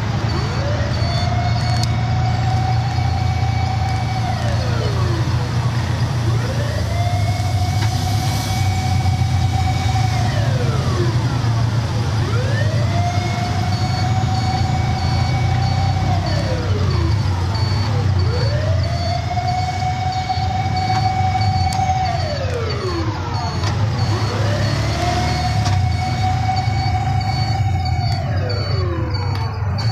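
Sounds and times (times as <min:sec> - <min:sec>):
car driving drone: 0:00.0 - 0:29.9
emergency siren wailing: 0:00.0 - 0:29.9
faint high beep: 0:26.7 - 0:29.9.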